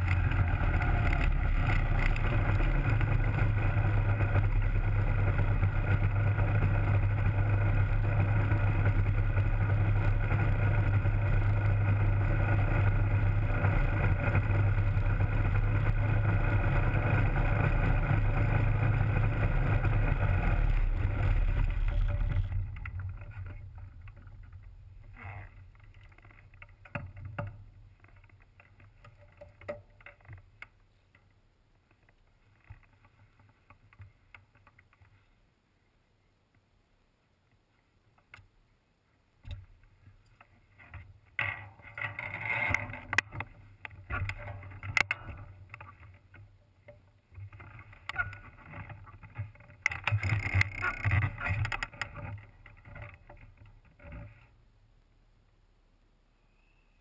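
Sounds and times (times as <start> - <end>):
engine winding down: 0.0 - 25.4
ultralight engine running: 0.0 - 25.6
faint clicks and knocks: 0.0 - 35.4, 37.4 - 38.6, 39.4 - 54.6.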